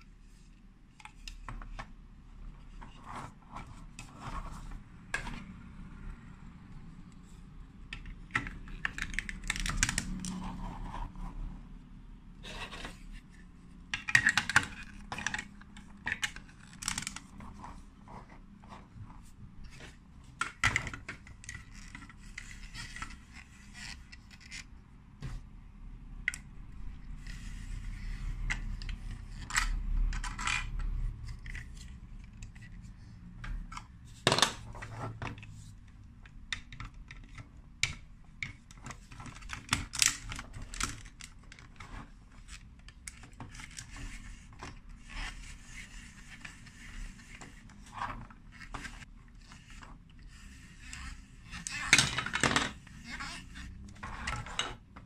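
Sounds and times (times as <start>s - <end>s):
plastic bricks clicking and scraping: 8.0s - 10.9s, 13.9s - 17.8s.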